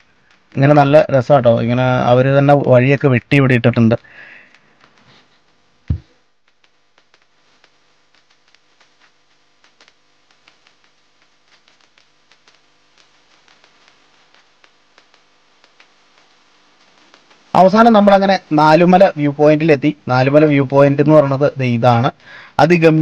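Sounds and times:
loud low thump: 5.9s - 6.1s.

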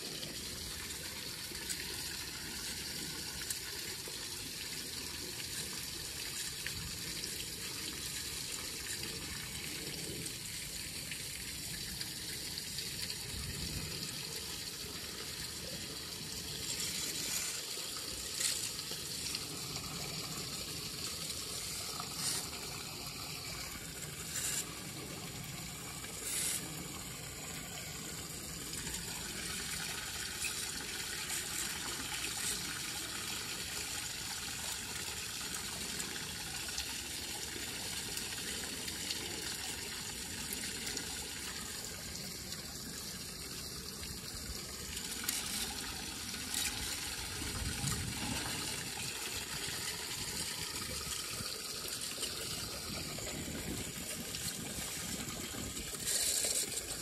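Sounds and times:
water pouring into storm drain: 0.0s - 57.0s.

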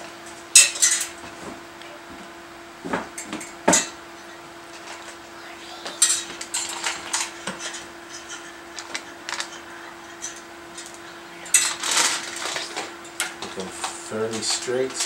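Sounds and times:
faint steady hum: 0.0s - 15.0s
wires rustling and clicking: 4.7s - 15.0s.

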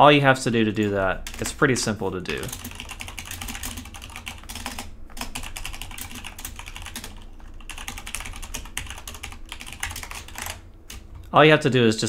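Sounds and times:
fast typing on keyboard: 0.8s - 1.6s, 2.3s - 11.0s.

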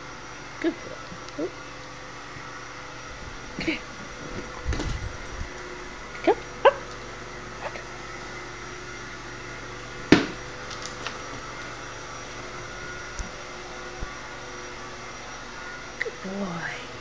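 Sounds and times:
room hum: 0.0s - 17.0s.

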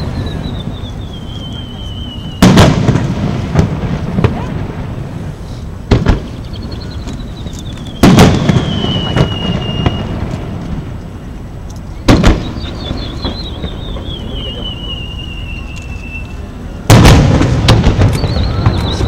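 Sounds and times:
wavering firework whistle: 0.0s - 3.1s, 6.2s - 10.4s, 12.0s - 19.0s
firework shells bursting: 16.9s - 19.0s.

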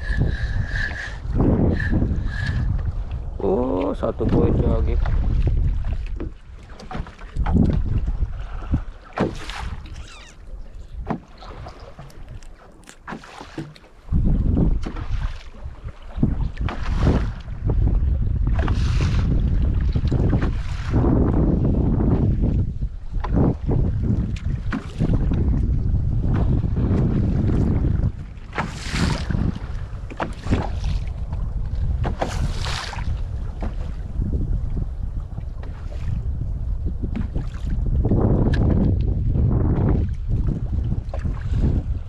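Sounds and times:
water splashes: 0.0s - 21.2s, 23.2s - 25.5s, 26.2s - 34.2s, 35.2s - 42.0s
wind buffeting microphone: 0.0s - 42.0s.

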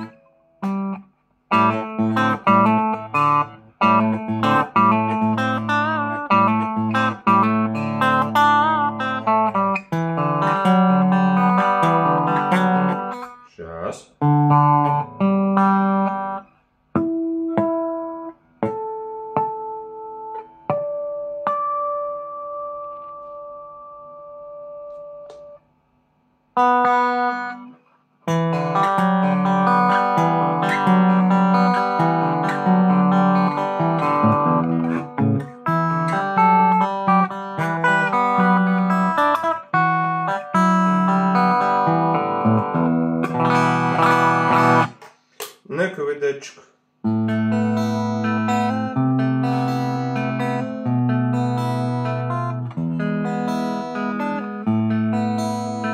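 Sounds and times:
electric guitar riff: 0.0s - 25.6s, 26.6s - 55.9s
ringing guitar chord: 26.6s - 45.0s.

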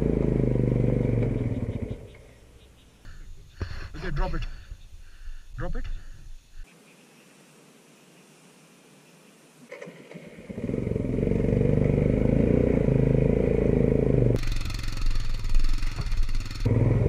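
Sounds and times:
motorcycle engine revving: 0.0s - 2.4s, 9.7s - 17.0s.

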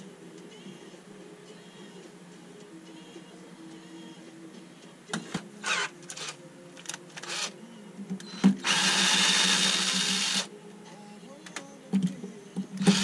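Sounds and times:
cordless drill running: 7.2s - 7.5s, 8.6s - 10.5s.

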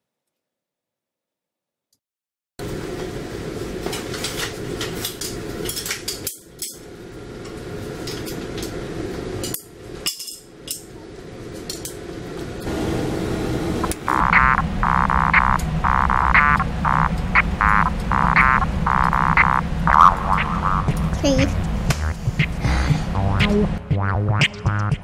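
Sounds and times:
steady low hum: 11.2s - 24.8s
music with pitched pattern: 14.0s - 25.0s.

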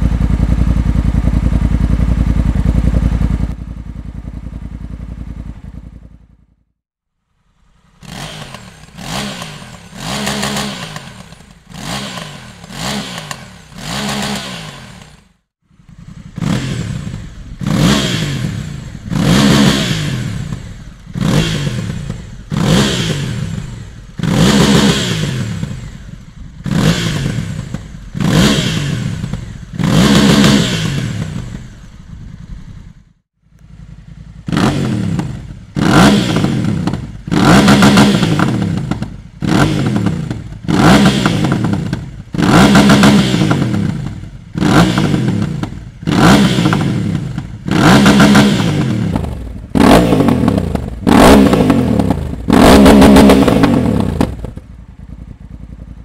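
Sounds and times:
motorcycle engine revving: 0.0s - 6.8s, 7.4s - 56.0s.

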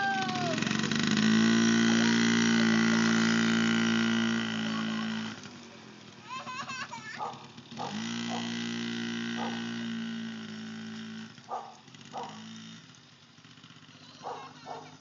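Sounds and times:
dog barking: 7.2s - 8.5s, 9.4s - 9.7s, 11.5s - 12.4s, 14.2s - 15.0s.

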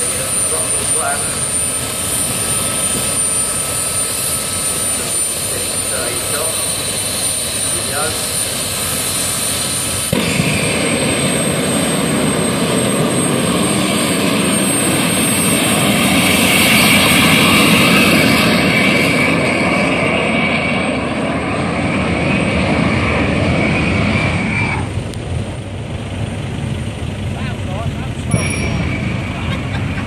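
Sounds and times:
jet engine whine and blast: 0.0s - 30.0s.

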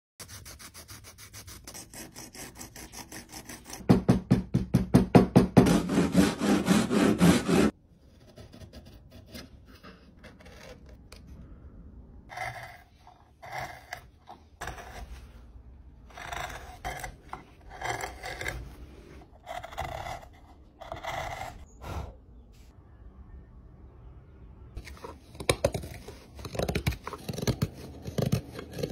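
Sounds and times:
gouge scraping wood: 0.2s - 3.9s, 5.6s - 11.0s, 12.3s - 15.3s, 16.1s - 21.6s, 24.8s - 28.9s.

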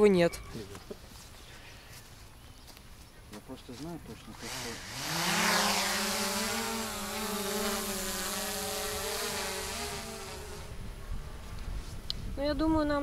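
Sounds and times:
drone rotors buzzing: 4.4s - 11.7s.

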